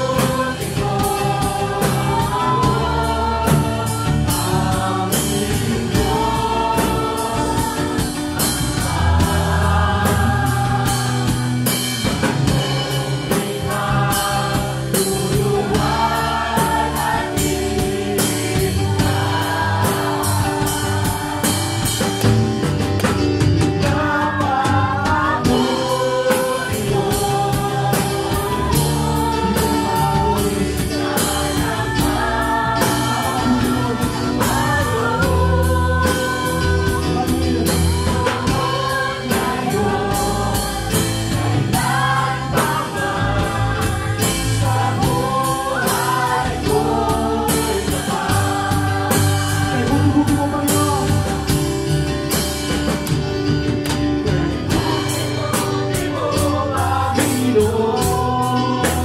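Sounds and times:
drum kit beat: 0.0 - 59.0
guitar playing: 0.0 - 59.0
people singing: 0.0 - 59.0.

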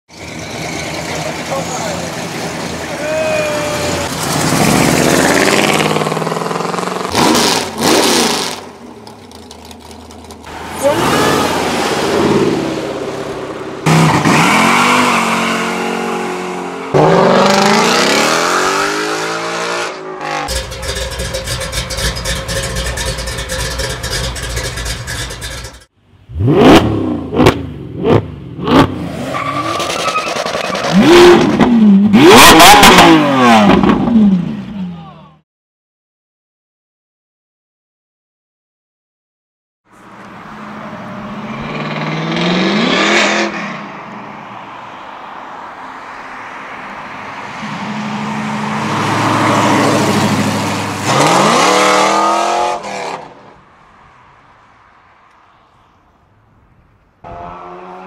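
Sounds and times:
cars accelerating hard: 0.5 - 8.6, 10.5 - 20.8, 26.3 - 34.5, 40.3 - 53.5, 57.3 - 58.0
loud engine rev: 3.7 - 8.6, 13.8 - 20.7, 26.3 - 29.8, 30.7 - 34.5, 41.3 - 43.7, 47.6 - 53.3.

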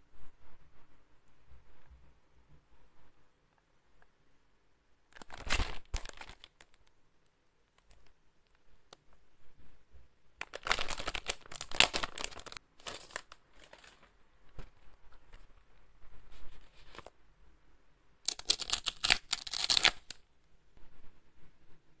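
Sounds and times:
plastic packaging crinkling: 5.2 - 6.9, 10.4 - 15.5, 18.3 - 20.2.

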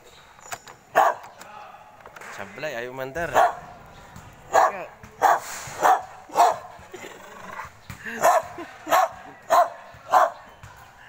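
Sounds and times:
dog barking: 0.9 - 1.3, 3.3 - 3.7, 4.5 - 6.8, 8.2 - 10.5.

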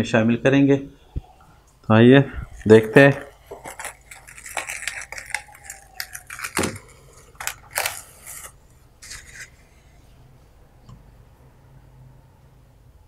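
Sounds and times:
cling film crinkling: 2.4 - 9.6.

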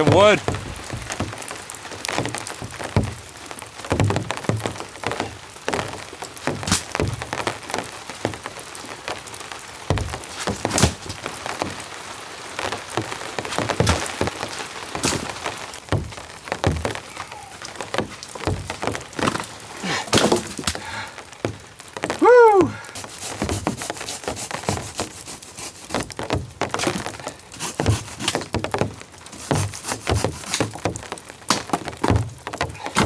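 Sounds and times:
branches knocking onto woodpile: 0.0 - 7.6, 9.8 - 11.9, 12.7 - 33.0
rain falling: 0.0 - 33.0.

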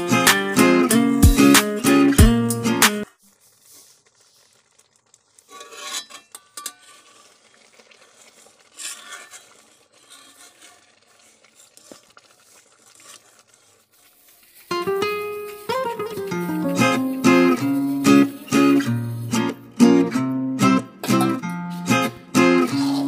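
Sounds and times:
metal spatula scraping iron pan: 5.4 - 19.7, 21.0 - 23.0.

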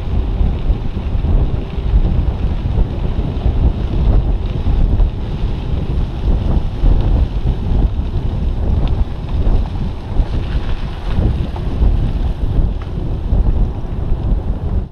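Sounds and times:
bicycle tyres rolling: 0.0 - 14.9
wind buffeting microphone: 0.0 - 14.9.

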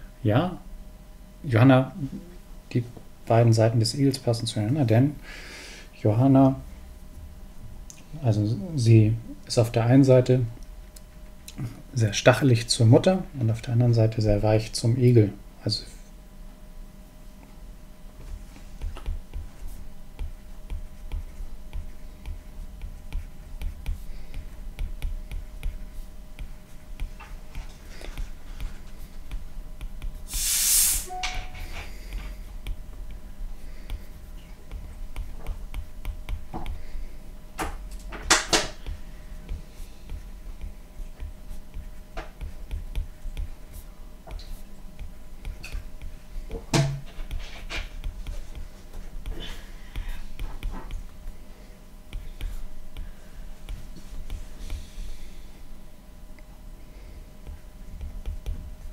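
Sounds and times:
short hissing noise: 30.3 - 31.3.

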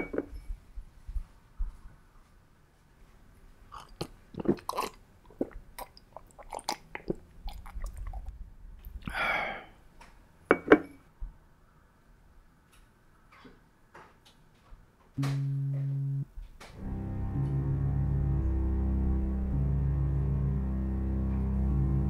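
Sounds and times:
man sipping and swallowing: 3.7 - 9.3
man exhaling: 9.0 - 9.8.

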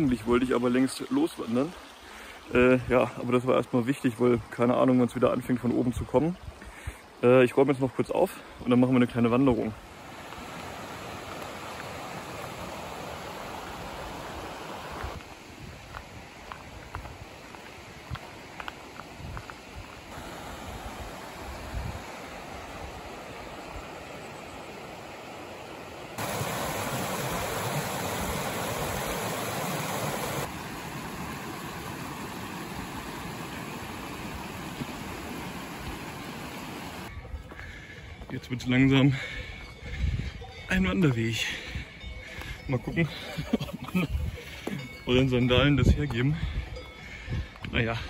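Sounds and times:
mountain stream rushing: 0.0 - 37.1
footsteps on gravel: 15.0 - 20.2.

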